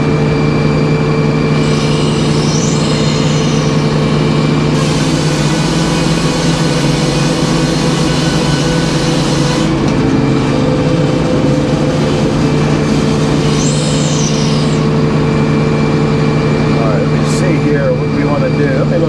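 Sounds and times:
sawmill engine running: 0.0 - 19.0
saw blade spinning free: 1.6 - 9.8, 11.4 - 15.0
saw blade cutting board: 1.6 - 9.9, 11.4 - 14.9.

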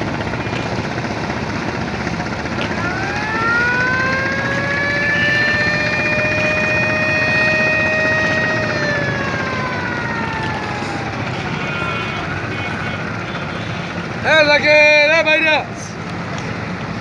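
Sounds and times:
long boat horn blast: 11.0 - 14.0.

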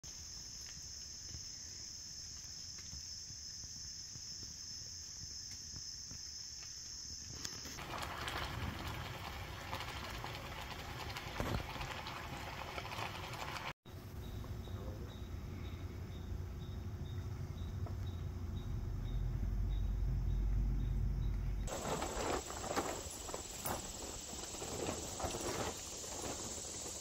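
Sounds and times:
crackling hiss: 0.0 - 13.8, 21.6 - 27.0
insects trilling: 0.1 - 13.6, 14.2 - 27.0.

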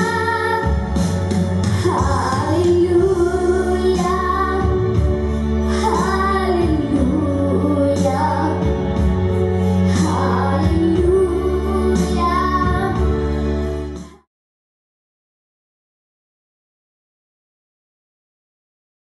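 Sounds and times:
girl singing into microphone: 0.0 - 1.0, 1.7 - 5.0, 5.7 - 9.0, 9.9 - 13.3
instrumental accompaniment: 0.0 - 14.3.

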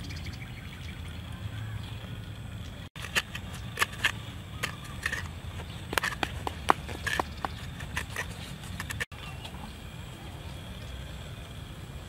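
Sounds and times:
coconut shell clicks and scrapes: 3.0 - 9.1.

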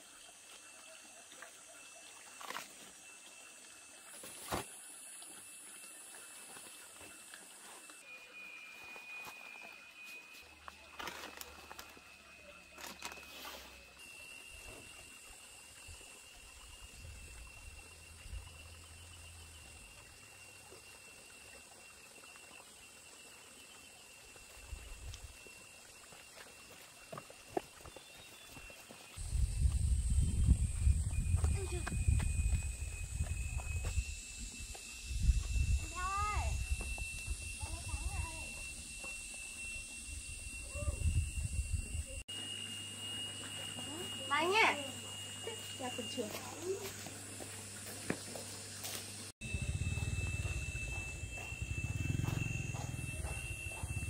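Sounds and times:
trickle of running water: 0.0 - 8.0, 9.4 - 29.7, 42.6 - 49.3
thin high tone: 28.0 - 48.0, 48.9 - 54.0.

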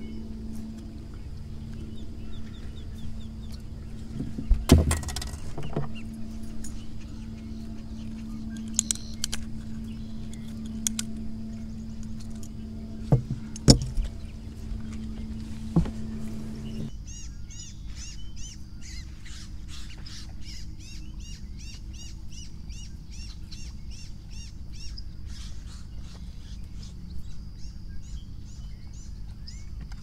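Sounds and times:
electric motor hum: 0.0 - 27.4
sharp knocks: 13.0 - 14.1.

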